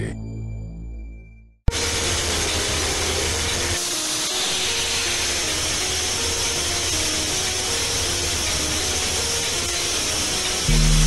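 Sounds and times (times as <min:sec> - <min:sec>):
background music: 0:00.0 - 0:11.0
low hum: 0:10.7 - 0:11.0.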